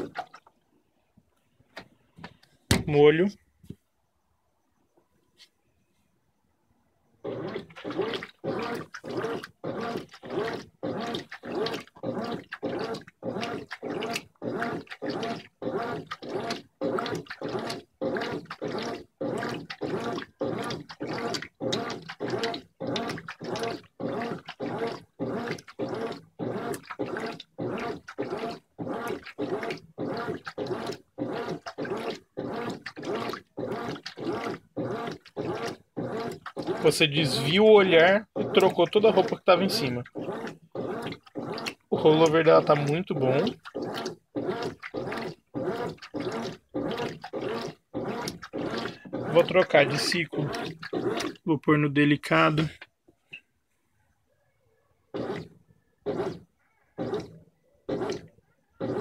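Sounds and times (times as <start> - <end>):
washing machine agitator sloshing water: 0.0 - 0.7, 7.0 - 52.9, 55.1 - 59.0.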